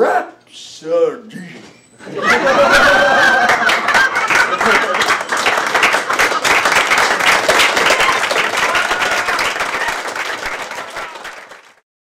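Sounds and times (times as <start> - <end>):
audience applauding: 2.6 - 11.8.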